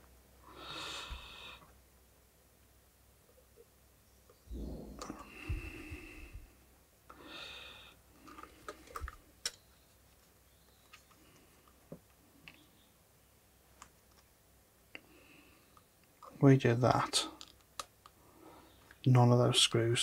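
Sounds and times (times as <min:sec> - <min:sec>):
soft thump: 0:04.5 - 0:05.8.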